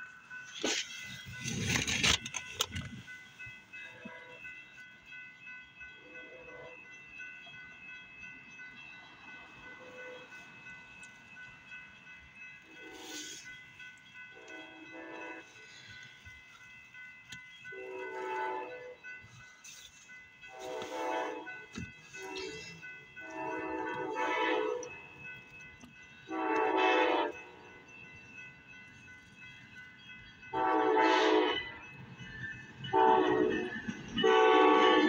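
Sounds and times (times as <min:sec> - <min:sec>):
steady bell ringing: 0:00.0 - 0:35.0
train horn blasts: 0:14.3 - 0:15.5, 0:17.7 - 0:19.0, 0:20.5 - 0:24.9, 0:26.3 - 0:27.5, 0:30.5 - 0:31.8, 0:32.9 - 0:35.0.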